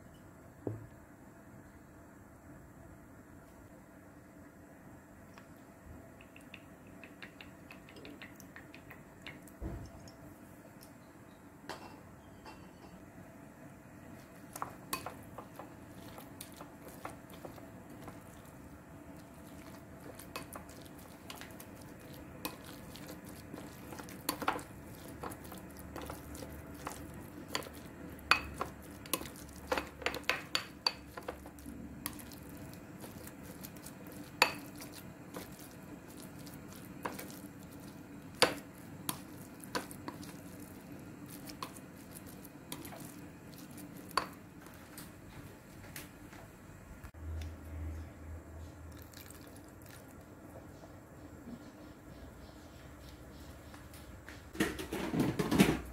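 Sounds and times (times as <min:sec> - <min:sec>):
spoon mashing meat in bowl: 0:14.2 - 0:45.2
spoon clacking against ceramic bowl: 0:19.5 - 0:33.6, 0:34.2 - 0:37.4.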